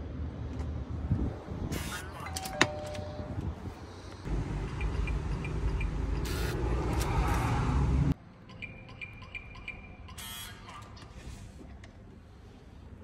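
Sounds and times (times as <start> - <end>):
keypad beeps: 8.5 - 10.4.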